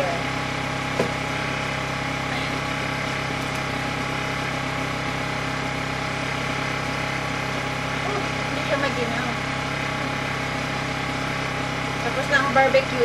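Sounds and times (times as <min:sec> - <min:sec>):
engine humming: 0:00.0 - 0:13.0.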